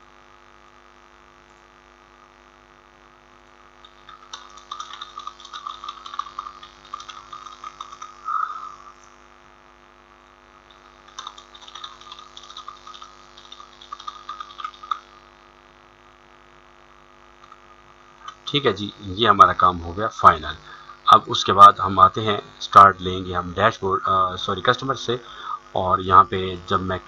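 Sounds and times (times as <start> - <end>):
mains hum: 0.0 - 27.0
keyboard typing: 3.8 - 8.8, 10.7 - 15.1.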